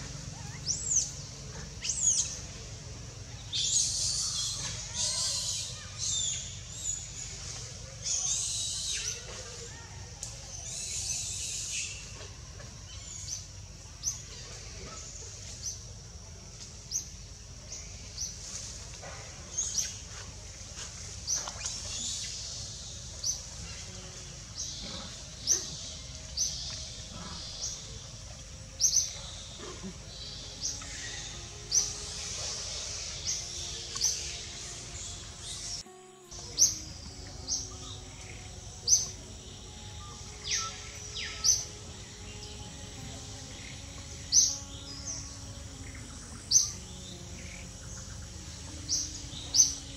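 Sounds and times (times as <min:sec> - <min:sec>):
birds chirping: 0:00.0 - 0:49.9
hissy bird calling: 0:24.6 - 0:49.9.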